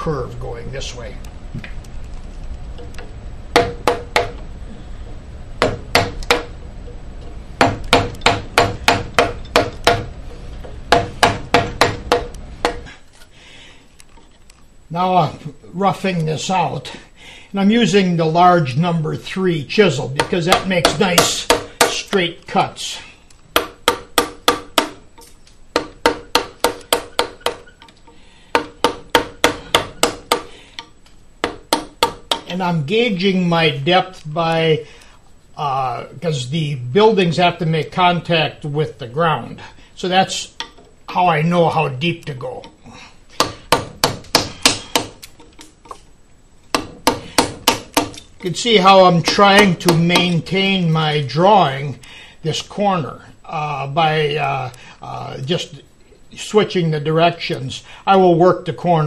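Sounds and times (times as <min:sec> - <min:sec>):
mallet striking chisel handle: 0:03.6 - 0:04.4, 0:05.6 - 0:06.5, 0:07.6 - 0:10.1, 0:10.9 - 0:12.8, 0:25.8 - 0:27.8, 0:28.6 - 0:30.5, 0:31.4 - 0:32.5, 0:43.4 - 0:45.3, 0:46.7 - 0:48.3.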